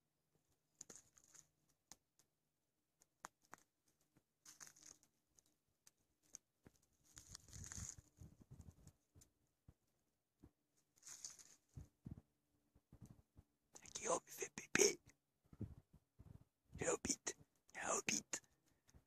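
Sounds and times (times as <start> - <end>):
twigs snapping: 3.0 - 3.7, 4.4 - 8.1, 11.0 - 11.6
footsteps crunching on dry needles: 4.4 - 5.1, 7.0 - 8.2, 11.0 - 11.7.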